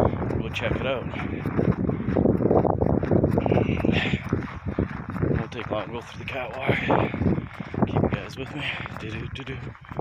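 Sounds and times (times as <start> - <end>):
footsteps crunching in snow: 0.0 - 10.0
wind buffeting microphone: 0.0 - 10.0.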